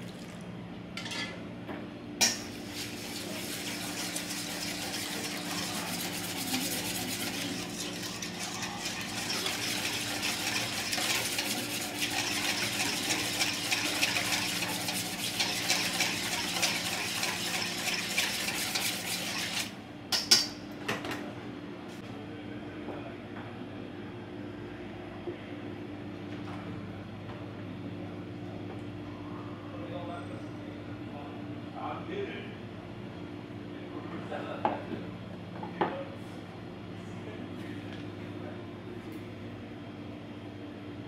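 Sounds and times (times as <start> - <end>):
food crackling in metal cookware: 2.2 - 19.7.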